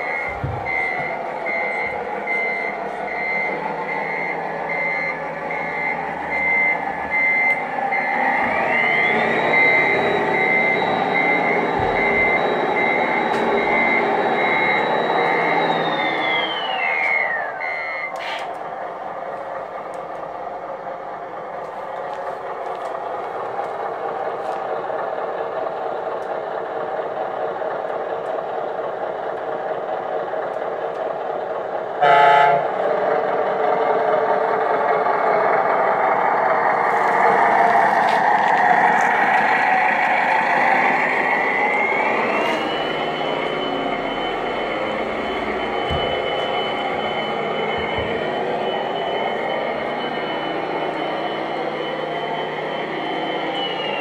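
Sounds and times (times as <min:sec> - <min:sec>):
rising whine: 0:00.0 - 0:19.0, 0:33.3 - 0:54.0
simulated truck engine: 0:00.0 - 0:54.0
short horn blast: 0:32.0 - 0:32.8.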